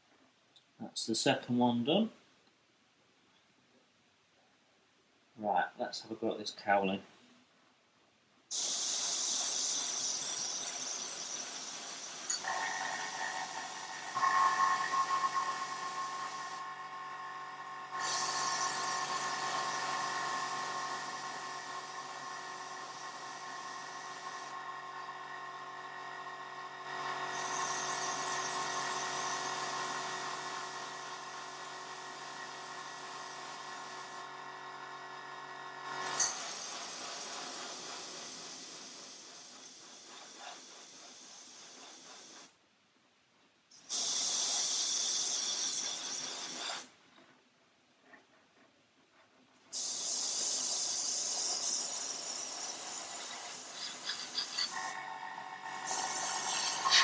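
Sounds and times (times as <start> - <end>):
airbrush hissing: 8.5 - 24.6, 27.2 - 30.3, 43.7 - 46.9, 49.7 - 57.0
air compressor humming: 8.5 - 42.6, 49.7 - 57.0.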